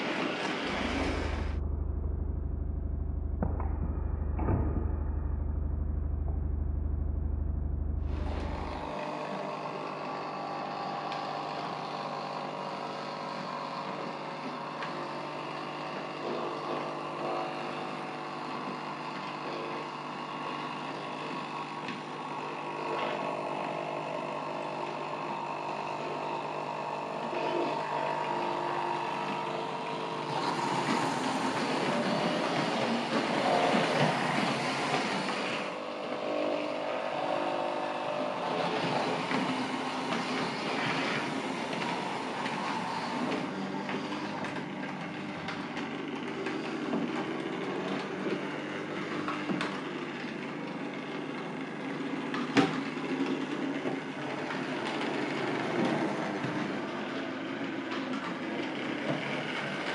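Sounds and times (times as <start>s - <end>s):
low hum: 0.6s - 9.0s
wheels rumbling and rattling: 0.7s - 8.9s.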